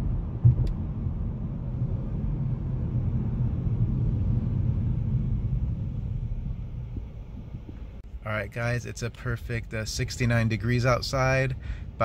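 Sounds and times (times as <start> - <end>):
road and engine rumble: 0.0 - 12.0
short thump: 0.4 - 0.8.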